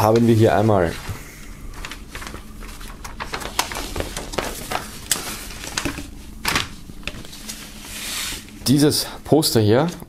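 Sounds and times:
paper poster rustling: 0.0s - 10.0s.

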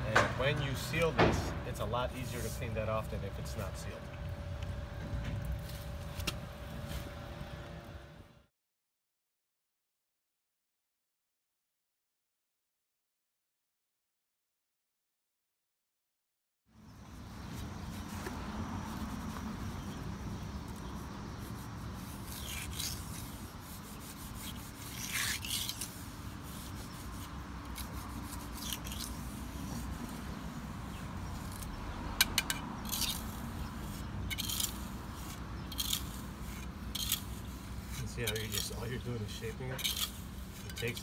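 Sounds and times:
hand tool scraping stone: 21.3s - 30.2s, 31.2s - 41.0s.

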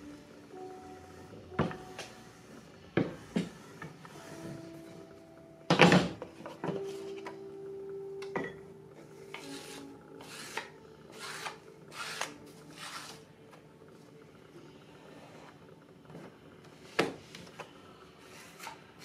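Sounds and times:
rolling pin rolling over clay: 0.0s - 7.3s, 8.4s - 19.0s
rolling pin knocking on board: 2.9s - 4.0s.

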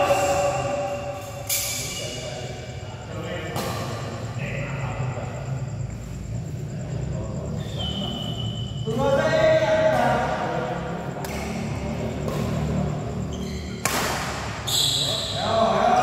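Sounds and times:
echoing hall din: 0.0s - 1.4s
shoe squeak: 7.5s - 9.4s, 11.3s - 15.6s
rackets hitting shuttlecock: 9.9s - 10.4s, 11.1s - 14.7s.

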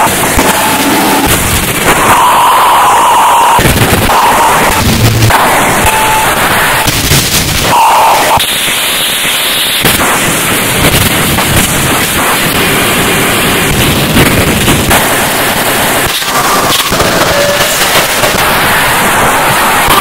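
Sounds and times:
harsh distorted noise music: 0.0s - 20.0s
brief tone: 2.0s - 4.8s, 5.8s - 6.8s, 7.6s - 8.4s, 16.4s - 17.8s.

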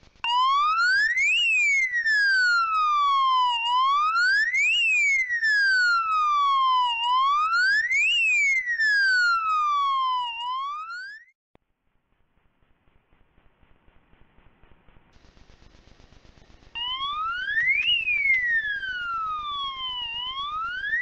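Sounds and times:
alarm siren wailing: 0.2s - 11.3s, 16.8s - 21.0s.

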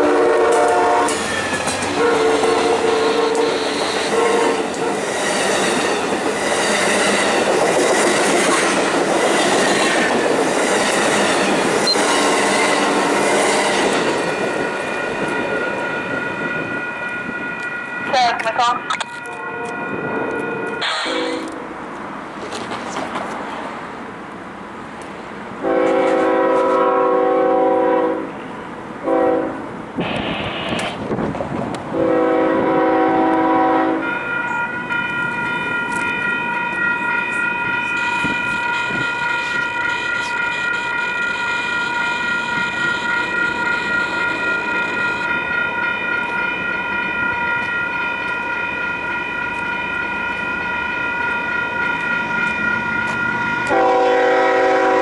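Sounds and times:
locomotive air horn blasts: 0.0s - 1.2s, 1.9s - 5.0s, 20.4s - 21.7s, 25.6s - 29.6s, 31.9s - 34.2s, 38.0s - 43.2s, 53.6s - 55.0s
crossing warning bell ringing: 0.0s - 21.8s, 32.0s - 55.0s.

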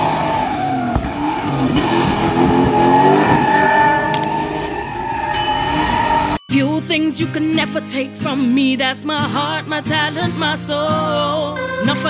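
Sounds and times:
car engine revving: 0.0s - 6.4s
tyre squeal: 0.0s - 6.4s.

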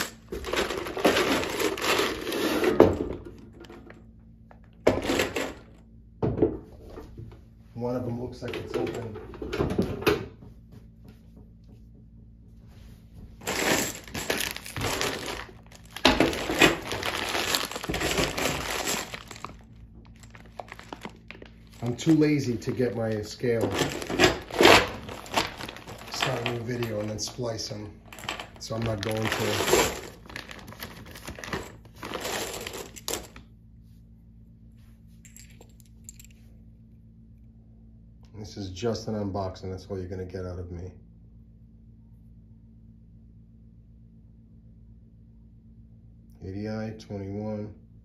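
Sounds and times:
plastic bag crinkling: 13.4s - 33.3s
metal cartridges clinking: 13.5s - 33.4s, 35.3s - 36.4s.

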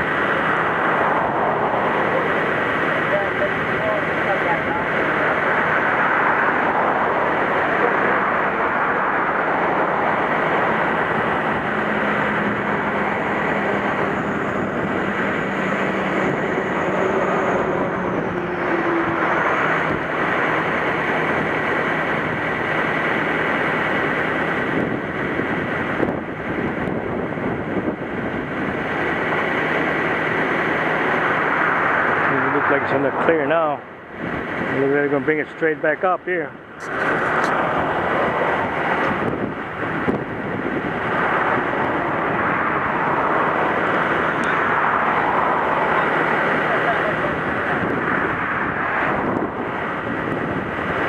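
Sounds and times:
surf roaring: 0.0s - 51.0s
wind: 0.0s - 51.0s.

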